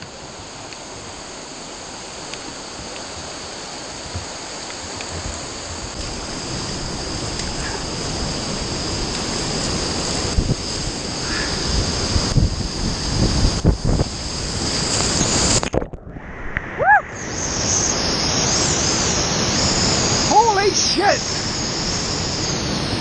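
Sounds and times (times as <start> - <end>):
river water rushing: 16.3 - 23.0
whitewater rapids: 16.8 - 23.0.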